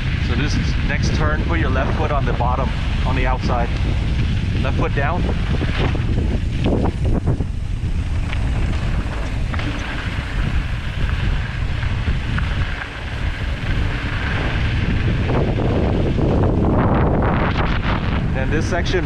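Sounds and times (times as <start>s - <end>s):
tyres on gravel trail: 0.0s - 19.0s
wind rushing over microphone: 0.0s - 19.0s.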